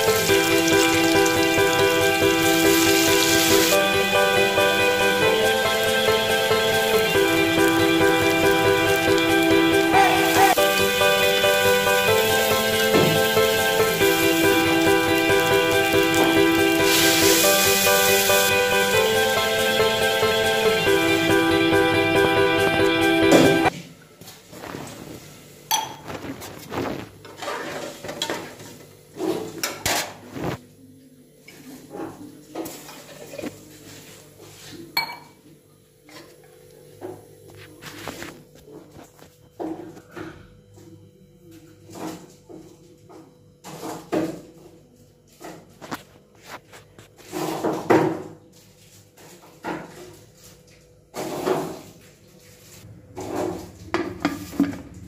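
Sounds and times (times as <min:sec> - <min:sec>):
utensils and pots clattering: 0:00.0 - 0:19.3, 0:25.7 - 0:26.4, 0:27.2 - 0:30.3, 0:31.8 - 0:33.6, 0:53.1 - 0:55.0
metal pots scraping and clanking: 0:25.7 - 0:30.3, 0:53.1 - 0:55.0.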